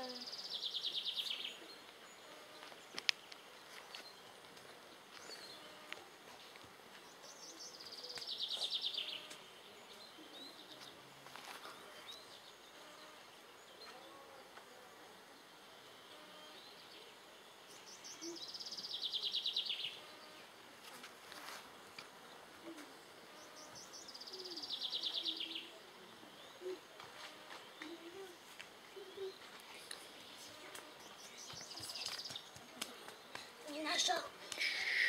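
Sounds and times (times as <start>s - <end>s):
faint bird chirps: 11.6s - 20.5s, 22.5s - 35.0s.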